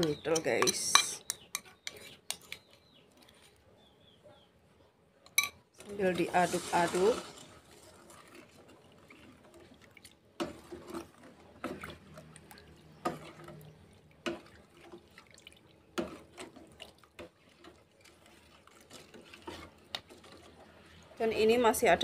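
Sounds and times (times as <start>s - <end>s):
liquid swishing in a pot: 5.7s - 22.0s.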